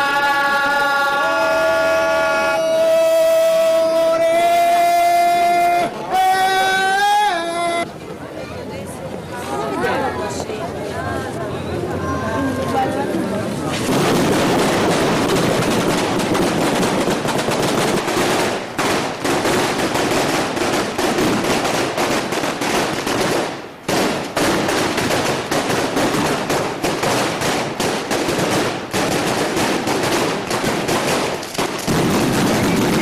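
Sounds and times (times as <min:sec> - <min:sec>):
firecrackers crackling: 0:13.5 - 0:33.0.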